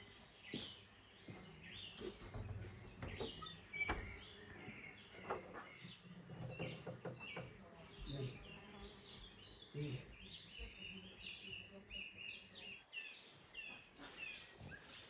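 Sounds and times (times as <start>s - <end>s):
footsteps on dirt floor: 0.0s - 3.4s, 12.8s - 15.0s
small birds chirping: 0.0s - 15.0s
wooden door pushed open: 2.3s - 4.4s.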